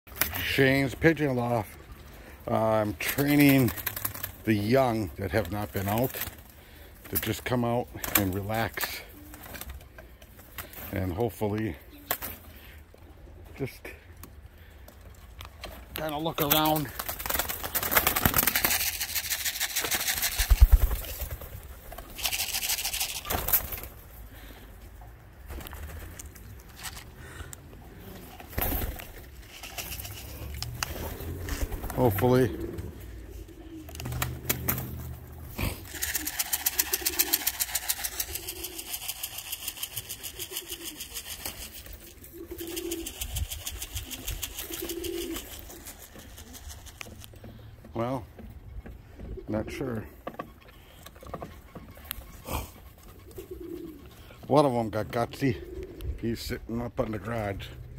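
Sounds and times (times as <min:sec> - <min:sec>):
pigeon wings fluttering: 0:00.1 - 0:01.8, 0:02.9 - 0:11.3, 0:12.0 - 0:12.6, 0:15.6 - 0:24.2, 0:25.4 - 0:27.0, 0:28.0 - 0:47.4.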